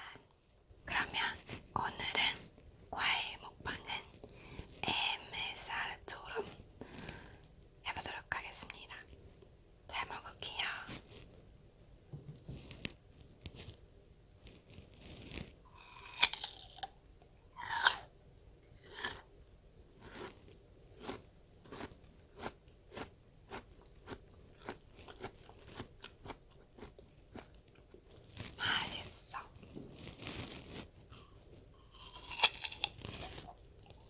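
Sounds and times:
close-up chewing: 15.7 - 16.9, 20.0 - 28.5, 30.1 - 34.0
crunching bite of pear: 15.7 - 16.9, 17.6 - 18.1, 18.7 - 19.3, 20.0 - 27.5, 31.1 - 34.0.

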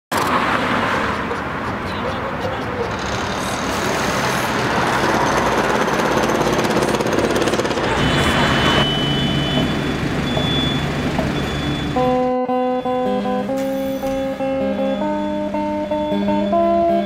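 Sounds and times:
street traffic: 0.1 - 17.0
rough rattling engine: 1.0 - 12.1
plucked guitar notes: 11.2 - 17.0.

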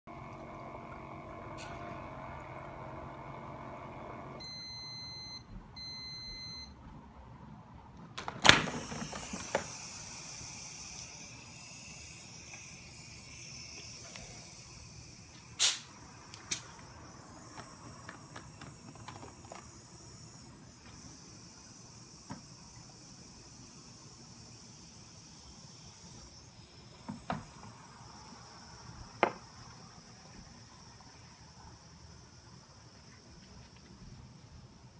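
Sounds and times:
carbonation machine humming: 0.1 - 4.4, 8.4 - 33.8
machine beeps: 4.4 - 6.8
faint steady hiss: 7.4 - 34.9
loud sharp bottle release: 15.5 - 16.7.

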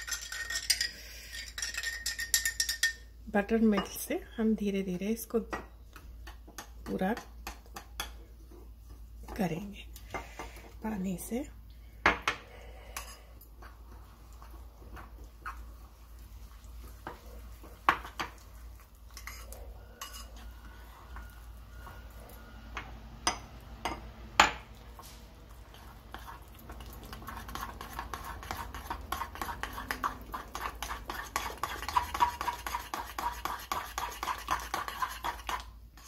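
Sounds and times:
spoon clinking on bowl: 0.0 - 3.1
spoon stirring batter: 0.0 - 11.4, 12.7 - 22.4, 24.8 - 36.0.

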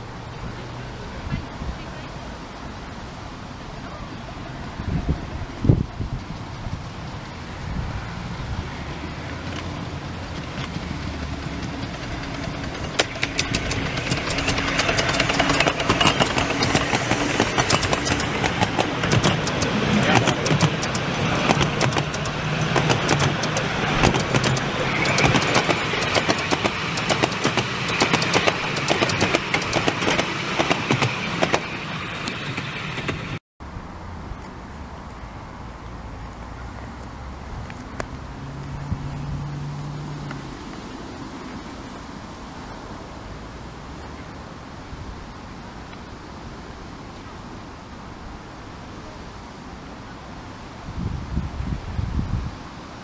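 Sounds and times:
train wheels clattering over rail joints: 8.6 - 33.4.

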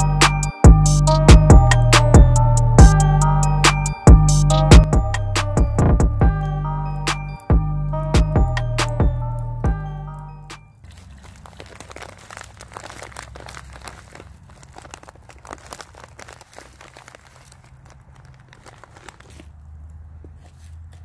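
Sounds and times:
background music: 0.0 - 10.8
dry rice pattering into pot: 10.8 - 19.9
paper packet crinkling: 10.8 - 21.0.

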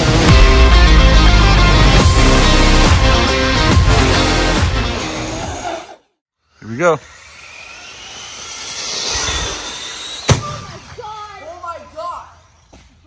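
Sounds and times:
backing music: 0.0 - 5.7
electric toy car motor whining: 6.6 - 10.3.

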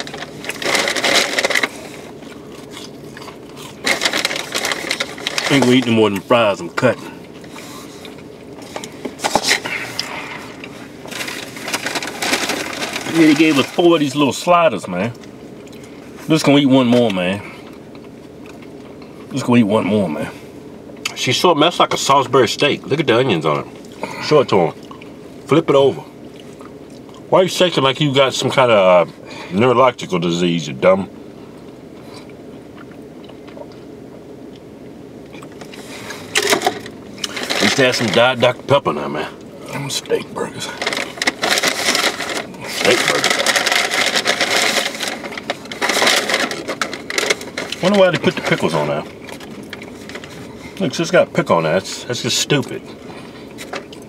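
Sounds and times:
person chewing: 0.0 - 5.3, 31.6 - 34.7, 35.3 - 36.4.

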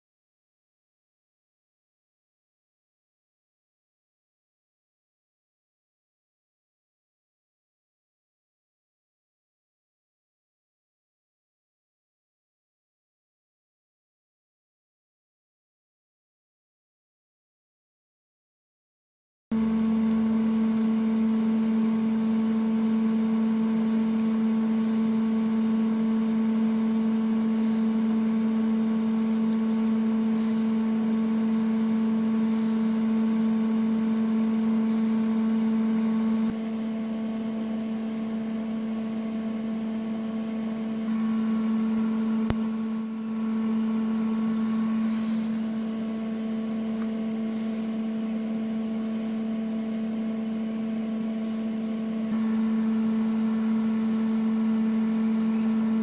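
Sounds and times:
milling machine motor hum: 19.6 - 56.0
faint high whistle: 41.0 - 46.6.

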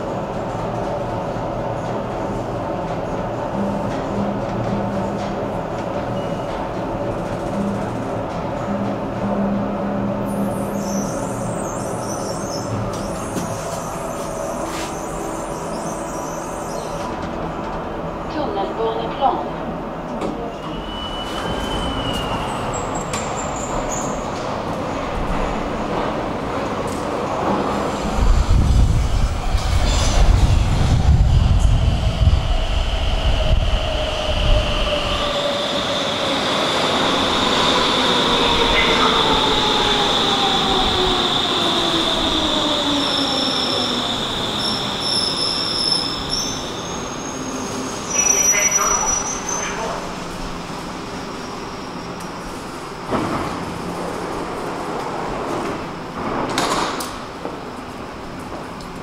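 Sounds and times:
metro train rumbling: 0.0 - 59.0
high squeal: 20.5 - 24.2, 32.9 - 50.0.

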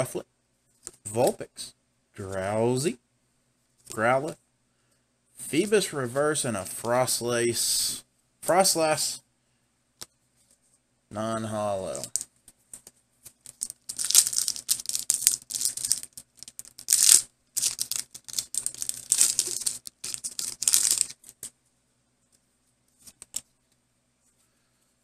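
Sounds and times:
foil wrapper tearing and crinkling: 13.3 - 21.5.

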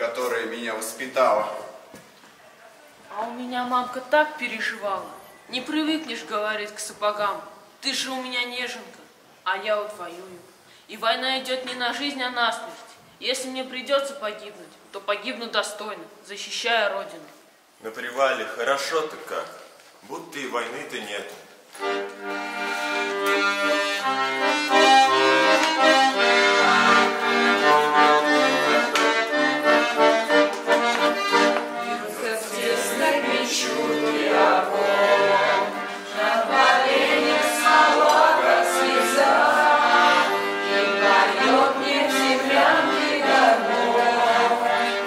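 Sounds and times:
button accordion melody: 21.8 - 45.0.

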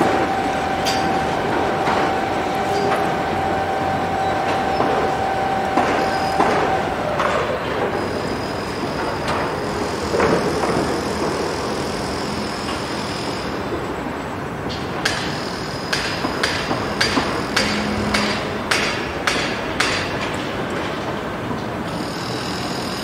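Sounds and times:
scattered knocks: 0.0 - 8.0, 15.0 - 20.9
construction machinery noise: 0.0 - 23.0
long high whine: 0.0 - 23.0.

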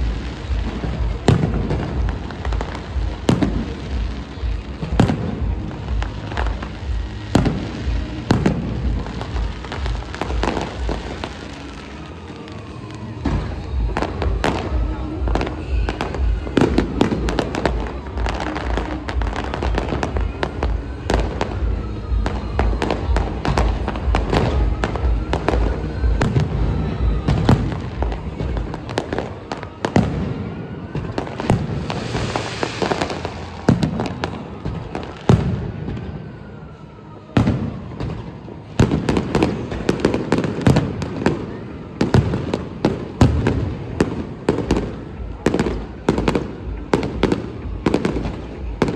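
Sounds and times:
firework whistle: 0.0 - 48.9
firework hissing burst: 31.2 - 35.7.

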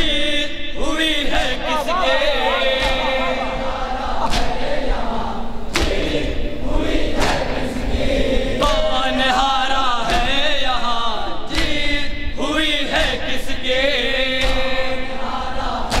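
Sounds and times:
men chanting a lament: 0.0 - 16.0
chest beating slaps: 2.7 - 3.5, 4.2 - 4.8, 5.7 - 6.5, 11.5 - 11.9.

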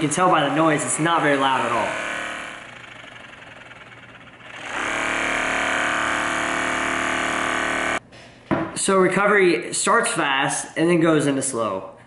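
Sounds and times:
massage gun motor buzzing: 0.5 - 8.0.

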